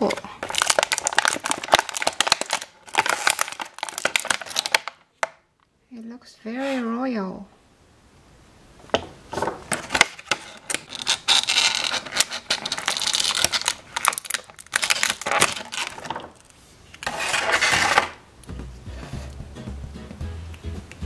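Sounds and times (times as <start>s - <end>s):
plastic packaging crinkling: 0.0s - 5.3s, 9.3s - 18.2s.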